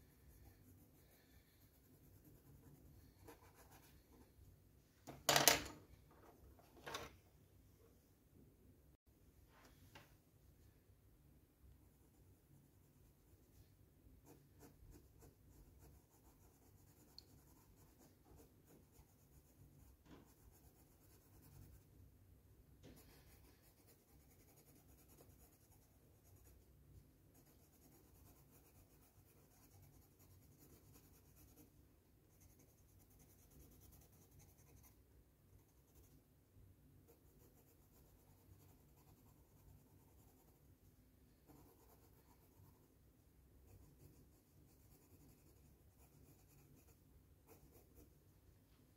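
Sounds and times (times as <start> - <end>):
pencil scratching on paper: 0.0 - 4.4, 12.0 - 21.9, 22.8 - 35.0, 37.0 - 40.8, 41.4 - 42.9, 43.7 - 48.2.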